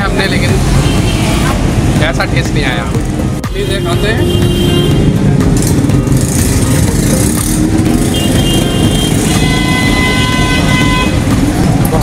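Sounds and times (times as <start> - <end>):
street traffic rumble: 0.0 - 12.0
vehicle horn: 3.6 - 5.2, 8.0 - 11.4.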